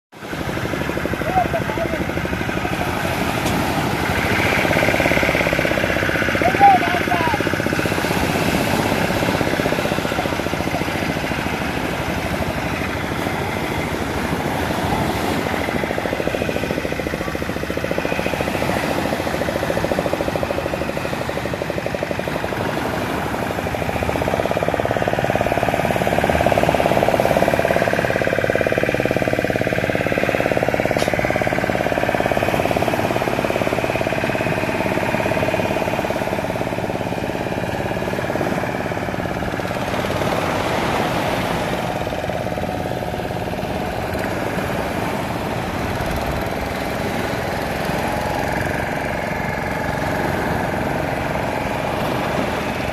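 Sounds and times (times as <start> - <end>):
outboard motor running: 0.1 - 52.9.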